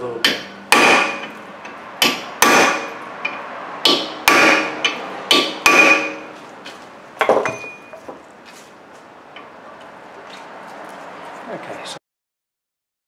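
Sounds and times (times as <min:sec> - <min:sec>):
hammer striking metal: 0:00.2 - 0:06.4, 0:07.2 - 0:08.2
light metallic clank: 0:07.2 - 0:08.2.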